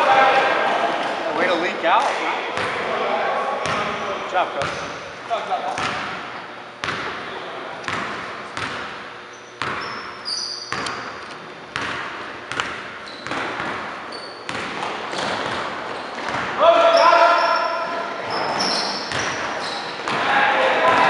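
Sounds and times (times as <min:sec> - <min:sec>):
sneakers squeaking on court: 0:03.6 - 0:06.2, 0:06.8 - 0:11.2, 0:11.8 - 0:20.2
basketball bouncing on wooden floor: 0:09.6 - 0:09.9, 0:11.7 - 0:16.6, 0:19.1 - 0:19.5.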